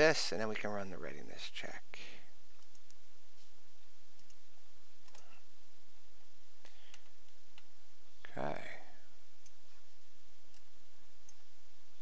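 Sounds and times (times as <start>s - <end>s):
steady low hum: 0.0s - 12.0s
computer mouse clicking: 2.6s - 3.0s, 4.2s - 4.4s, 5.0s - 5.4s, 6.8s - 7.7s, 9.4s - 9.6s, 10.5s - 11.4s.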